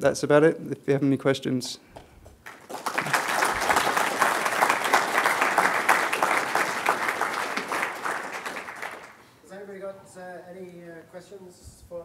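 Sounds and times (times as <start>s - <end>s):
audience applauding: 2.4s - 9.3s.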